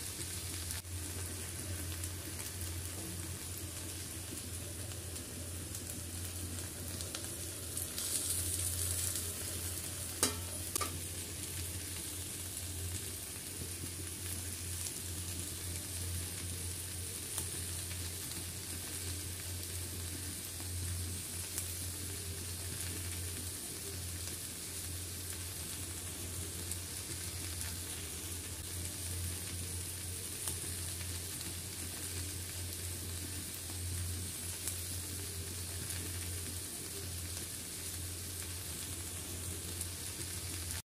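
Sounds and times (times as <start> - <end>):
food frying in oil: 0.0 - 40.8
low steady hum: 0.0 - 40.8.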